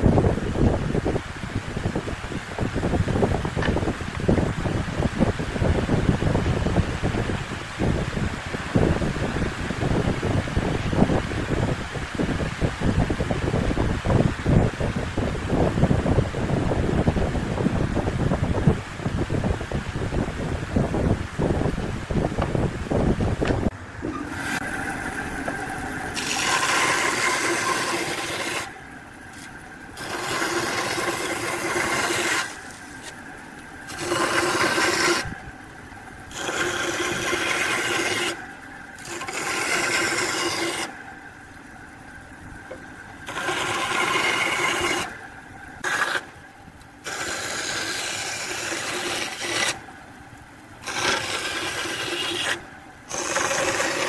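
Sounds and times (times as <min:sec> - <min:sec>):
bandsaw cutting wood: 0:24.2 - 0:33.2, 0:33.9 - 0:35.4, 0:36.3 - 0:38.4, 0:39.0 - 0:41.0, 0:43.2 - 0:45.2, 0:45.8 - 0:46.3, 0:47.0 - 0:49.8, 0:50.8 - 0:54.0.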